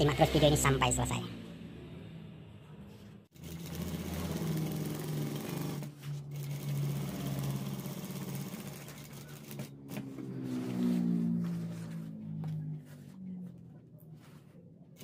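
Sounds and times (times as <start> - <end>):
sewing machine stitching: 3.3 - 9.9.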